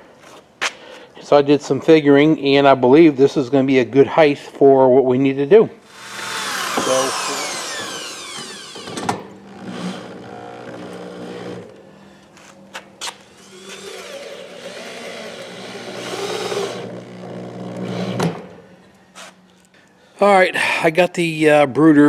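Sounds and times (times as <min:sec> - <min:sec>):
power drill driving screws: 0:05.9 - 0:11.7, 0:13.4 - 0:18.2.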